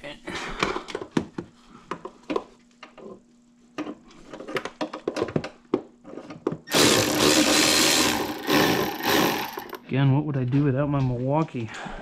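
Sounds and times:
cordless power tool running: 6.7s - 9.8s.

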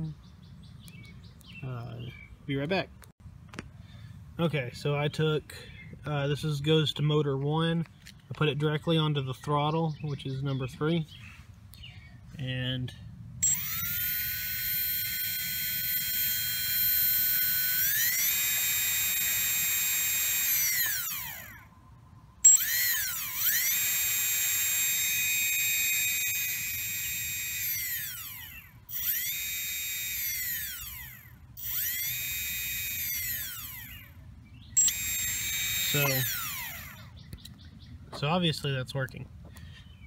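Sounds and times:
electric motor whine: 13.4s - 21.8s, 22.4s - 37.3s.

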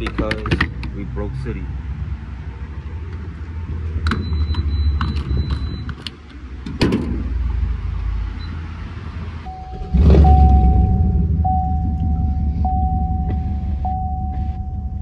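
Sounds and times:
truck engine starting and rumbling: 0.0s - 15.0s
steady chime tone: 9.5s - 15.0s.

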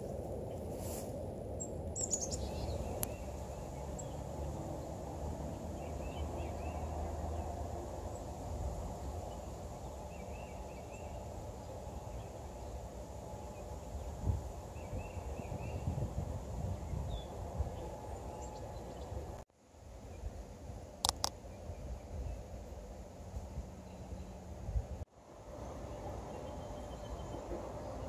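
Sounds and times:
footsteps swishing through grass: 0.0s - 1.2s.

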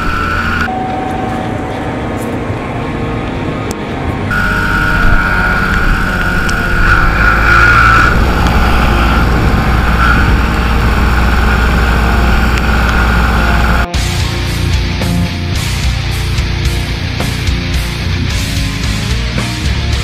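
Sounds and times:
muffled road noise inside car: 0.0s - 13.9s
tractor engine running: 0.0s - 18.6s.

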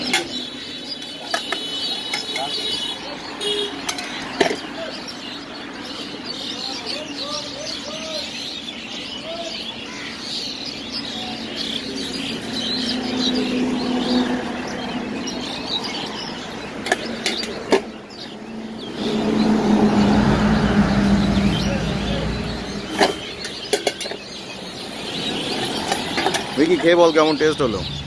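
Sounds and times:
small birds chirping: 0.0s - 28.0s.

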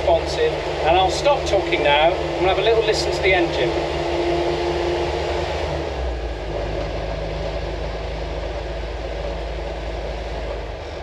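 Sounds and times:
man talking: 0.0s - 3.8s
engine rumbling from inside cab: 0.0s - 11.0s.

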